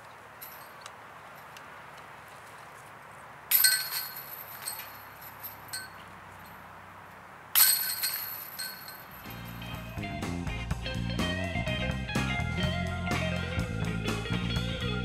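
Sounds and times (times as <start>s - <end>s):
disc hitting basket chains: 0.0s - 1.6s, 3.5s - 6.6s, 7.5s - 10.0s
small chain clinks: 0.3s - 1.6s, 3.5s - 6.6s, 7.5s - 9.8s.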